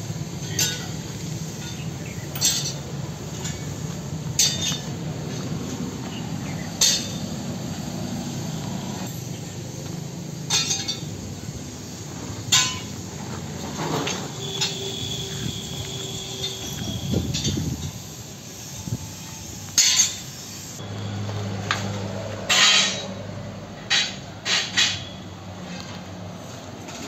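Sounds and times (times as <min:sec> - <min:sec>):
sharp metallic clinks: 0:00.3 - 0:05.6, 0:06.5 - 0:07.8, 0:10.4 - 0:11.2, 0:11.8 - 0:13.1, 0:14.0 - 0:20.8.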